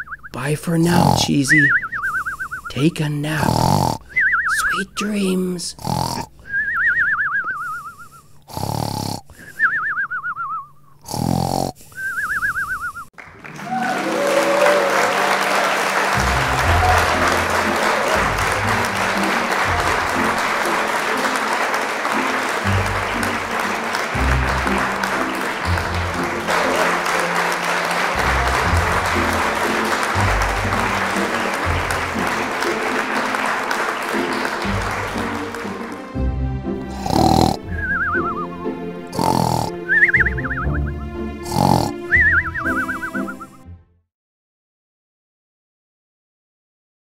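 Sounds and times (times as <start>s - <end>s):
cartoon snoring with whistle: 0.0s - 2.7s, 3.3s - 4.8s, 5.8s - 13.1s, 36.9s - 43.6s
applause: 13.2s - 36.3s.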